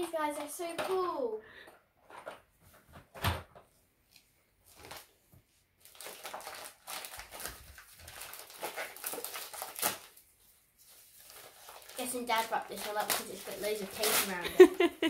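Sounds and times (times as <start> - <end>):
wrapping paper crinkling and tearing: 4.7 - 5.1, 5.8 - 14.8.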